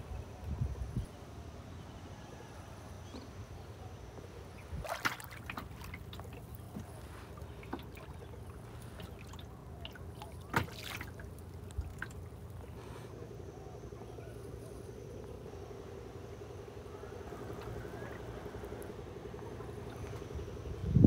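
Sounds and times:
paddle splashing in water: 0:04.6 - 0:12.8
water dripping and trickling: 0:04.8 - 0:12.7.

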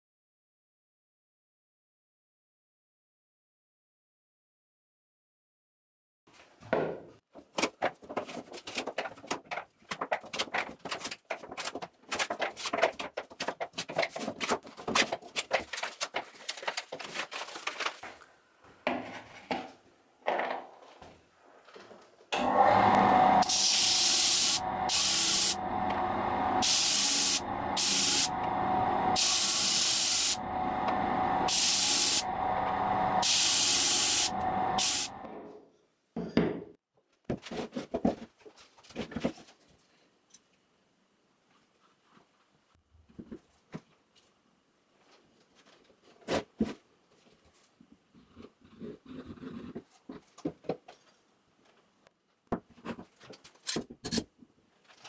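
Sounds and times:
disc sander running: 0:22.4 - 0:35.3
shells hissing against sanding disc: 0:22.9 - 0:35.2.

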